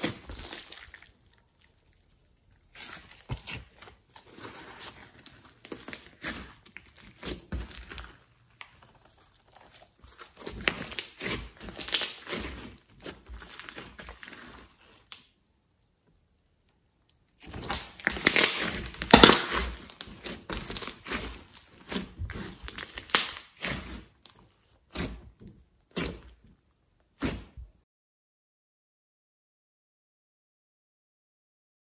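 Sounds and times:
slime squishing: 0.0s - 15.4s, 17.2s - 27.6s
slime clicks and pops: 18.0s - 19.9s.

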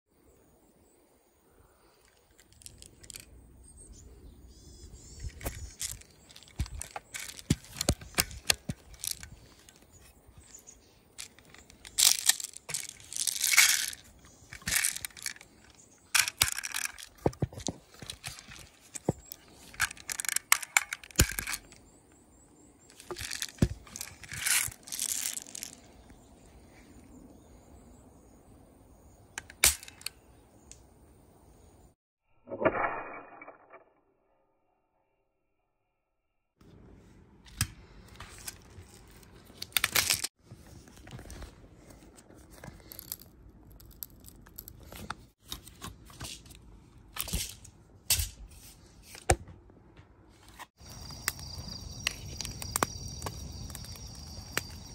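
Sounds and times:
wood and metal parts clicking: 2.0s - 3.3s, 5.2s - 22.2s, 22.9s - 26.1s, 38.4s - 40.3s, 41.0s - 48.4s
rustling and scraping: 2.2s - 3.3s, 5.0s - 21.8s, 22.8s - 27.0s, 36.6s - 49.4s, 50.2s - 51.2s.

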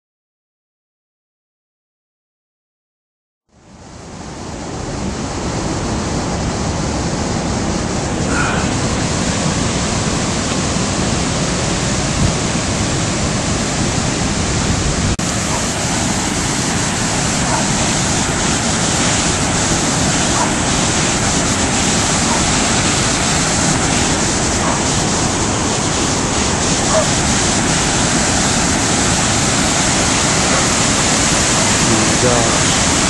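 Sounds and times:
floodwater rushing: 3.9s - 33.0s.

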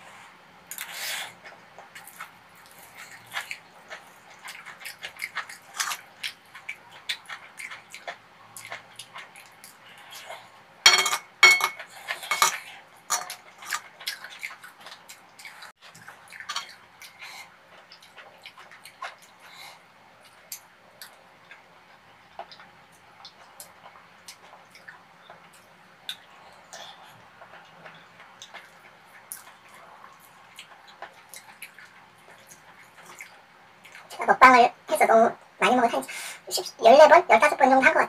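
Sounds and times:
metal spoon scraping a pan: 10.9s - 13.8s.

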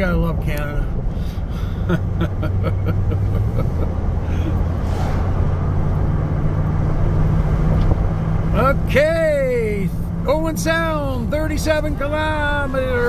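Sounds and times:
vehicle engine and road drone: 0.0s - 13.0s
brief hiss: 4.8s - 5.4s.

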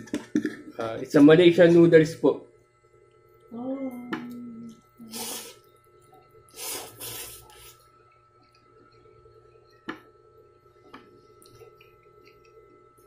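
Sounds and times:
person slurping noodles: 5.1s - 5.6s, 6.5s - 7.8s
quiet chewing: 10.9s - 13.0s.

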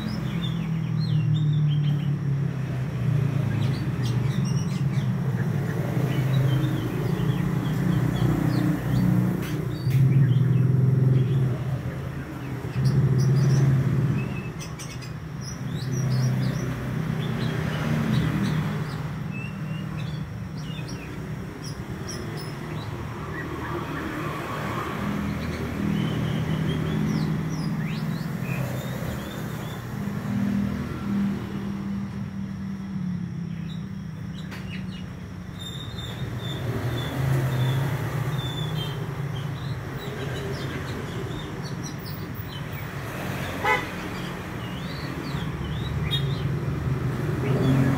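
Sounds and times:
bird chirping and whistling: 34.6s - 42.7s.

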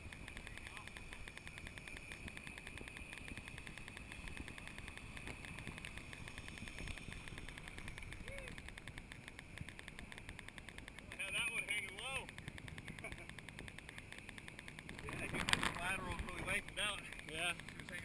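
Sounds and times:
wind rumble on microphone: 0.0s - 10.4s, 14.8s - 18.0s
rapid high-pitched ticking: 0.0s - 18.0s.

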